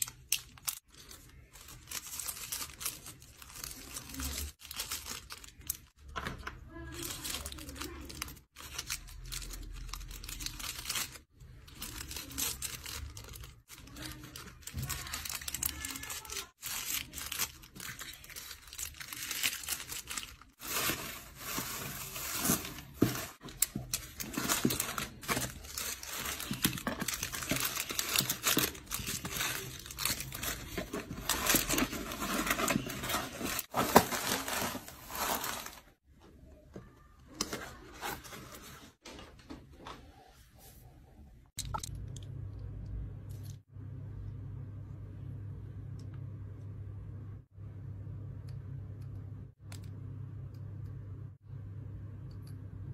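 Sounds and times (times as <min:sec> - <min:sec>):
plastic bags crinkling: 0:00.0 - 0:06.0, 0:06.7 - 0:36.0
paper filler rustling in a box: 0:06.7 - 0:36.0.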